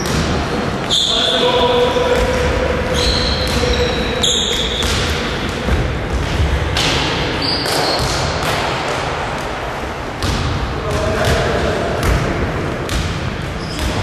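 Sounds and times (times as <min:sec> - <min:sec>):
shoe squeaks: 0:00.9 - 0:01.4, 0:02.9 - 0:05.0, 0:07.4 - 0:08.1, 0:13.6 - 0:14.0
basketball bouncing: 0:02.1 - 0:08.7, 0:10.2 - 0:14.0.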